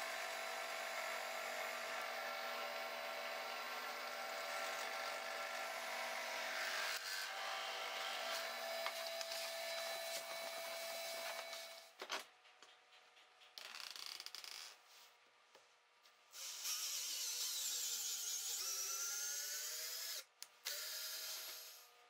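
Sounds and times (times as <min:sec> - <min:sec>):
cordless drill whining into wood: 0:18.5 - 0:21.9.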